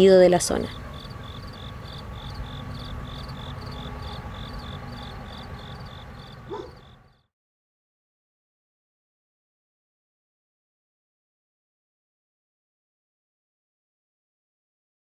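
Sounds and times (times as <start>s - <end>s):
low background rumble: 0.0s - 7.1s
insect chirping: 0.4s - 7.2s.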